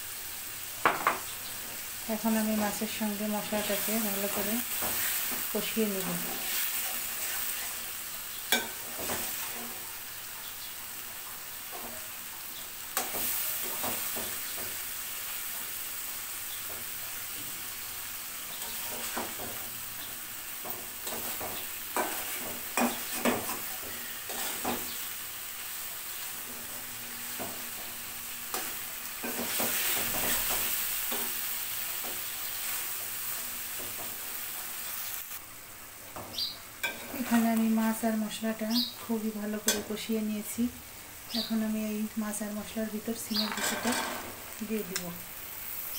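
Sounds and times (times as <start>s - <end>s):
fish sizzling in a pan: 0.0s - 45.9s
spatula scraping a pan: 4.7s - 5.5s, 6.2s - 7.8s, 18.5s - 19.6s, 20.6s - 25.0s, 28.5s - 34.8s.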